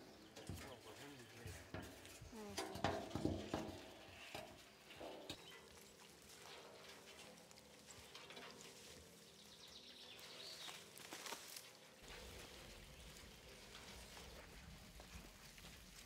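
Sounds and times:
scuffs and crunches in soil: 0:05.4 - 0:16.0.

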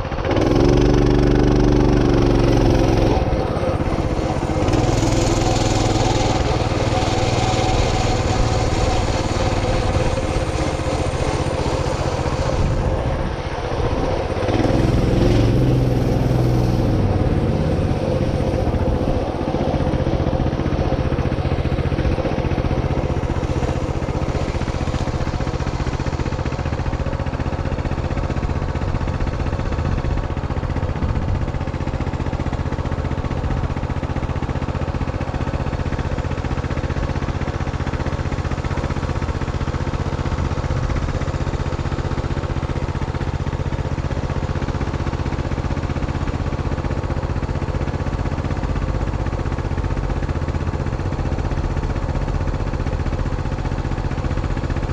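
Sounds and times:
small vehicle engine running: 0:00.0 - 0:54.9.

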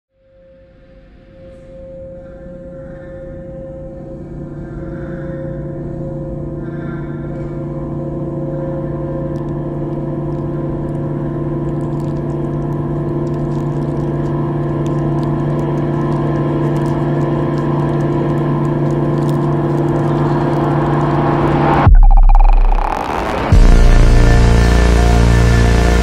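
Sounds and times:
ambient drone music: 0:00.3 - 0:26.0.

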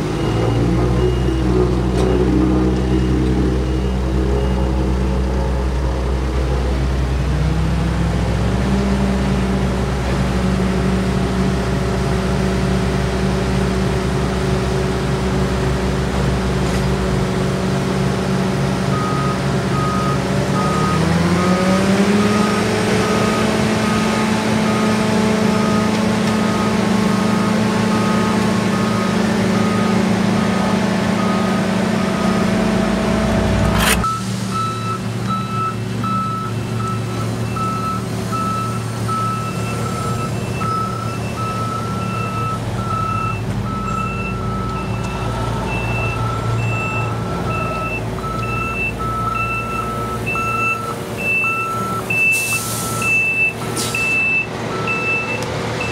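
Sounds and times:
heavy diesel machinery engine: 0:00.0 - 0:55.9
backup alarm beeping: 0:00.1 - 0:05.1, 0:34.0 - 0:55.9.

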